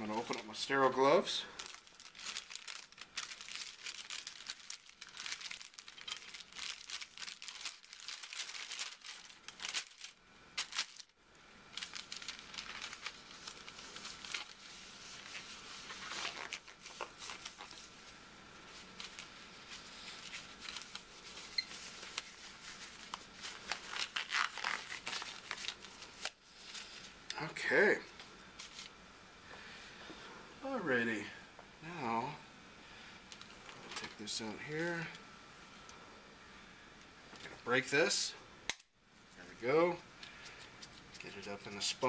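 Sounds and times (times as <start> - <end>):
paper wrapper crinkling: 0.0 - 18.0, 18.6 - 27.2, 28.6 - 28.9.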